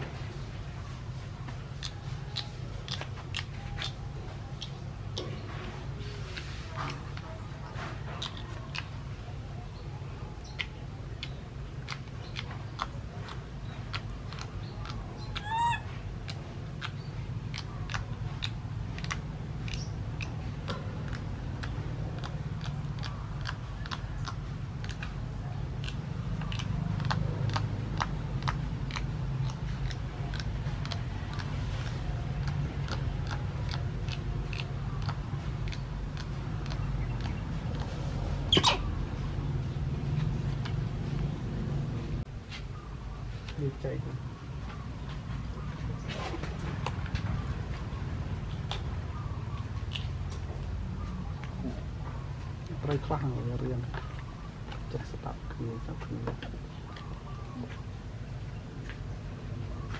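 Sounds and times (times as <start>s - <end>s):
steady low hum: 0.0s - 59.9s
baby monkey squeak: 15.2s - 16.0s, 38.5s - 39.0s.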